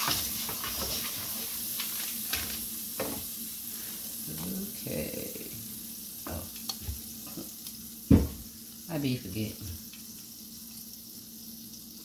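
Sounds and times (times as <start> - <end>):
kitchen utensils clicking and scraping: 0.0 - 3.3
butter sizzling in frying pan: 0.0 - 12.0.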